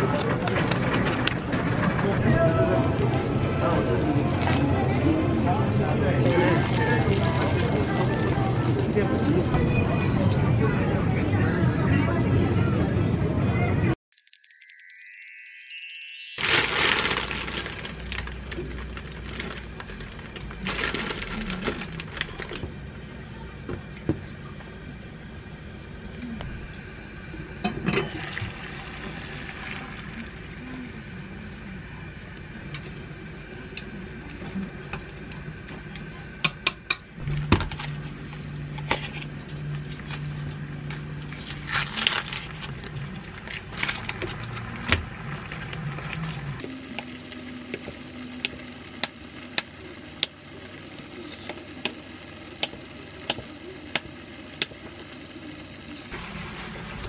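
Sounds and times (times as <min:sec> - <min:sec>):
plastic package rustling: 0:02.8 - 0:04.8, 0:06.3 - 0:08.9, 0:16.4 - 0:22.6
steady low hum: 0:16.7 - 0:57.0.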